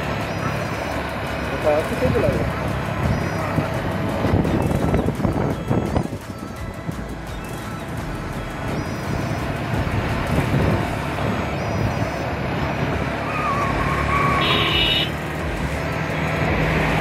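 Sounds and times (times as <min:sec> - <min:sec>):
motorcycle engine: 0:00.0 - 0:17.0
wind noise on microphone: 0:03.0 - 0:13.2.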